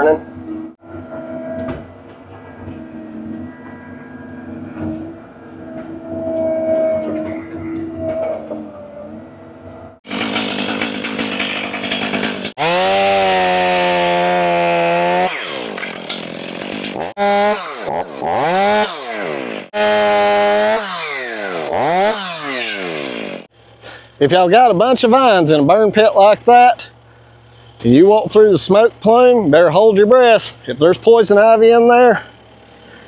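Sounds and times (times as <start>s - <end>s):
chainsaw revving and cutting: 10.1s - 23.5s.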